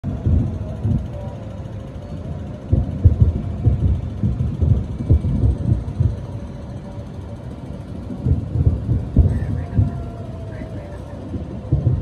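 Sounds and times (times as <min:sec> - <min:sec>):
distant fireworks booming: 0:02.5 - 0:12.0.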